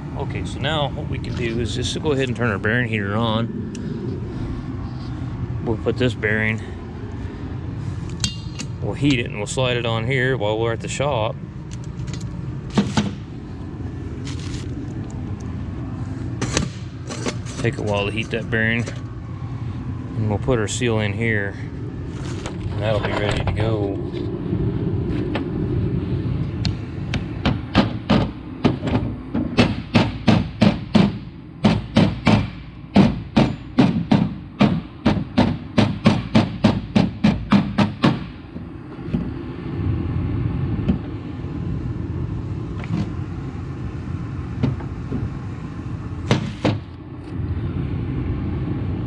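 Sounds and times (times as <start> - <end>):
steady low hum: 0.0 - 49.0
hammer striking metal: 8.2 - 8.7, 29.6 - 38.4.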